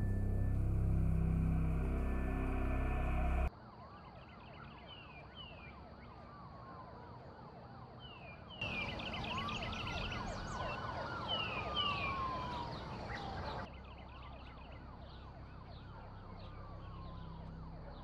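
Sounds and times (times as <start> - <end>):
police siren wail: 0.0 - 18.0
police siren yelp: 0.0 - 18.0.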